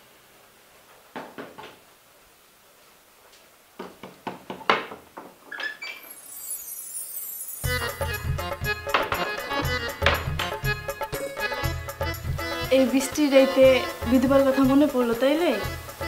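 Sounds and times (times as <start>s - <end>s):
door creak: 5.4s - 6.8s.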